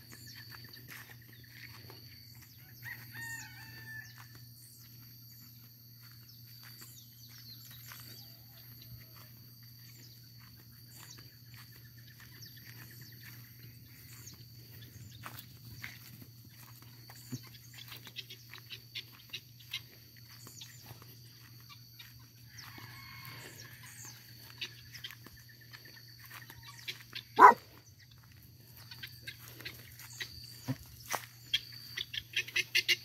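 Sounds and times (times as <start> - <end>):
faint rooster crowing: 2.4 - 4.6, 7.8 - 9.6, 22.4 - 24.7, 26.3 - 27.6.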